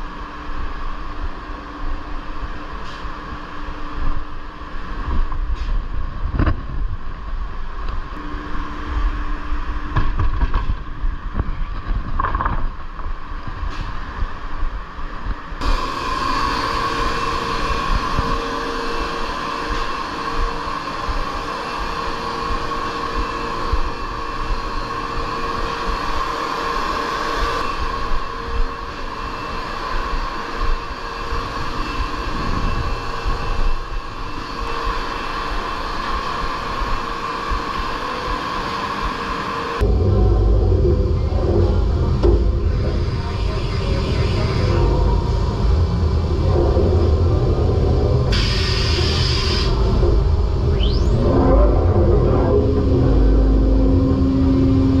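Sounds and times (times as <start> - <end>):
machine hum with held tone: 0.0 - 55.0
woodworking machinery hum: 15.6 - 55.0.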